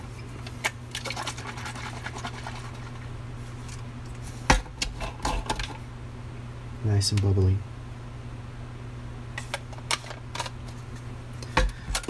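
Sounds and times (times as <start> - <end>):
liquid sloshing in spray bottle: 0.4 - 3.7.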